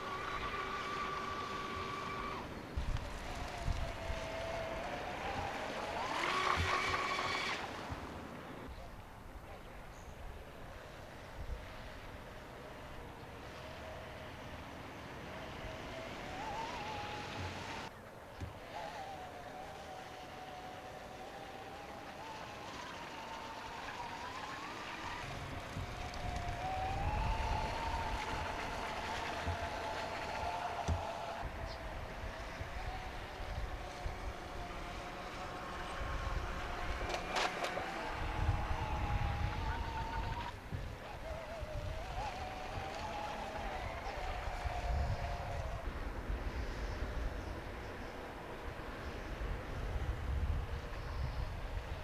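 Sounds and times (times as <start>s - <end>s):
powerboat motor whine: 0.0s - 8.8s, 10.6s - 52.0s.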